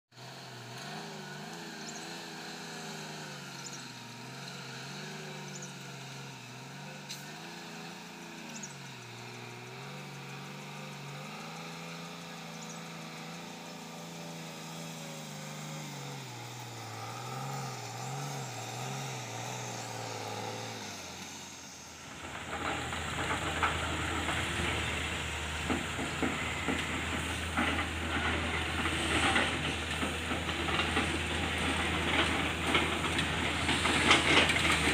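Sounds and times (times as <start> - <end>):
diesel engine revving: 0.1 - 34.9
rough clattering and rattling: 22.1 - 34.9.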